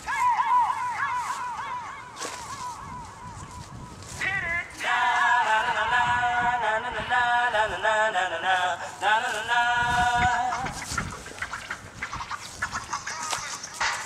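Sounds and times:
high wavering voice: 0.0s - 4.9s, 9.4s - 14.0s.

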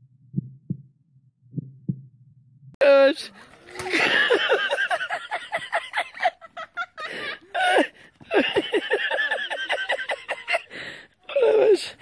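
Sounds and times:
person laughing hard: 3.8s - 10.7s.

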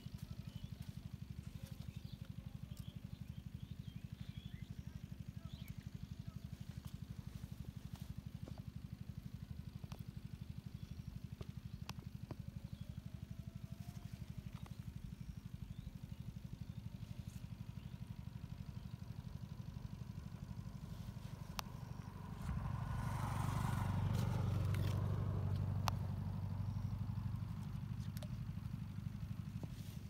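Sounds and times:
small engine throbbing: 0.0s - 30.0s
engine passing by: 19.5s - 30.0s.

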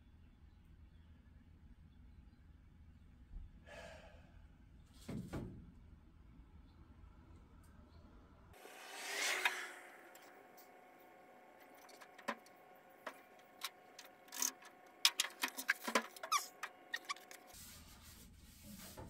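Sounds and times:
door squeaks: 15.5s - 17.4s.

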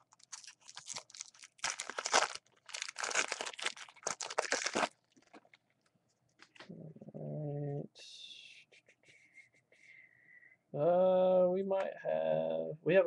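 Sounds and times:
plastic wrapper crinkling and tearing: 0.0s - 6.6s.

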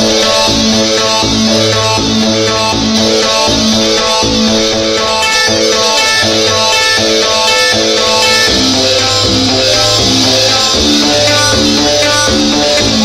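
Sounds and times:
repeating guitar notes: 0.0s - 13.0s
sustained low bass: 0.0s - 13.0s.

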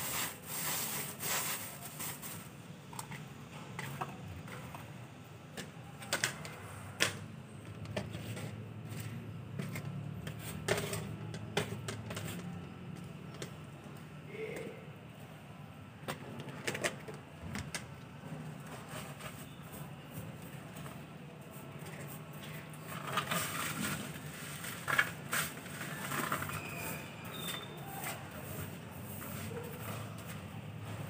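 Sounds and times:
hand brush sweeping litter: 0.0s - 2.6s, 23.3s - 31.0s.

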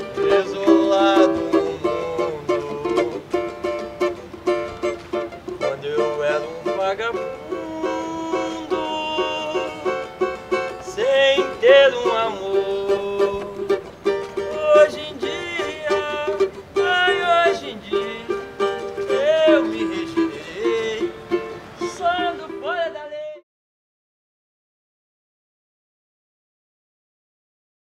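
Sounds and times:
man singing: 0.0s - 23.4s
plucked acoustic strings: 0.0s - 23.4s.

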